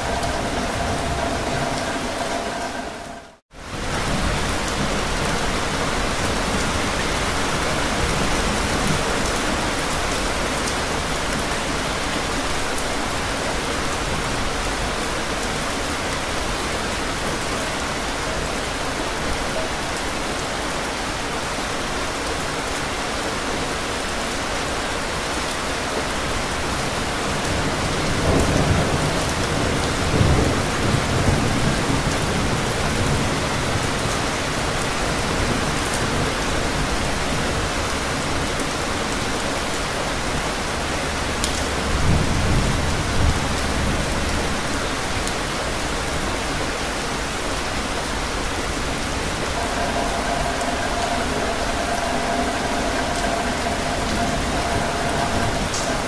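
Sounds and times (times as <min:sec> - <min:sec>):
low thunder rumble: 0:00.0 - 0:06.1, 0:48.6 - 0:56.0
heavy rain: 0:00.0 - 0:56.0.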